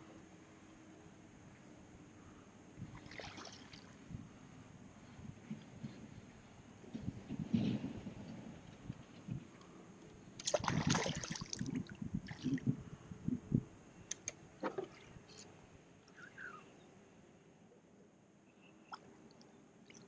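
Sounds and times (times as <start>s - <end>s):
water splashing beside a kayak: 2.9s - 4.0s, 10.4s - 12.6s
small clicks: 14.1s - 14.4s.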